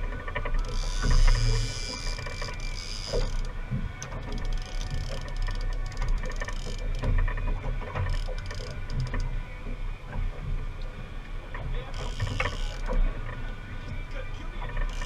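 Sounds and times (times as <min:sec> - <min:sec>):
fishing reel whirring and clicking: 0:00.0 - 0:09.3, 0:11.9 - 0:13.1, 0:14.6 - 0:15.0
boat engine rumble: 0:00.0 - 0:15.0.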